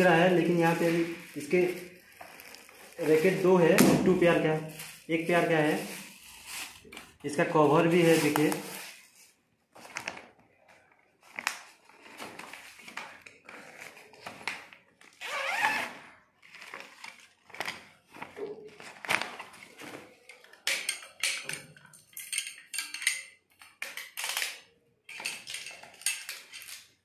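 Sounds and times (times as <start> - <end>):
plastic packaging crinkling: 0.0 - 20.7.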